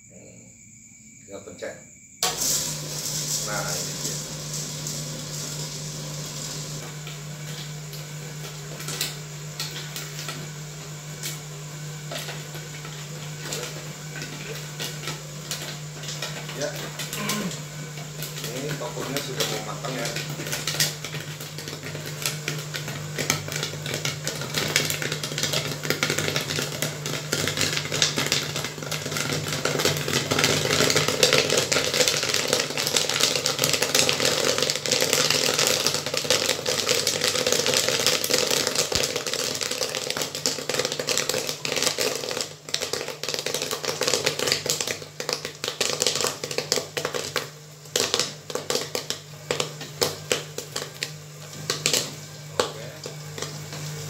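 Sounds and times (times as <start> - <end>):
low machine hum: 2.2 - 42.4
corn popping: 2.2 - 54.0.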